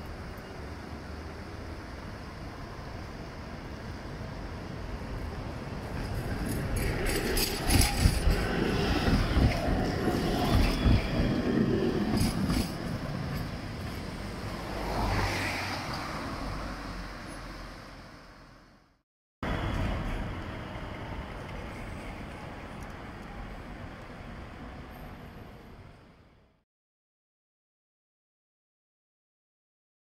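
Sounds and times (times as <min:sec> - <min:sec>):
tram wheels rumbling on rails: 0:00.0 - 0:17.7, 0:19.4 - 0:26.0
sharp clacks of tram wheels: 0:05.8 - 0:14.2.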